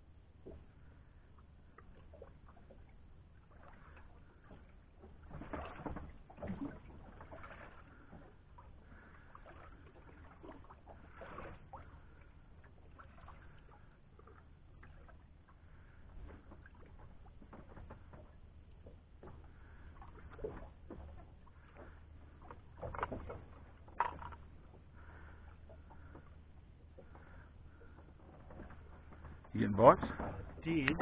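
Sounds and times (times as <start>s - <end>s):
water lapping against boat hull: 0.0s - 31.0s
light clicks and knocks: 27.0s - 31.0s.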